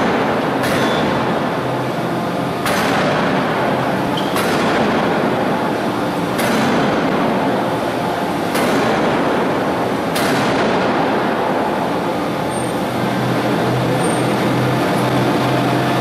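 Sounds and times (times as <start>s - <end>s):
loud machinery noise: 0.0s - 16.0s
forging hammer heavy blows: 2.6s - 7.7s.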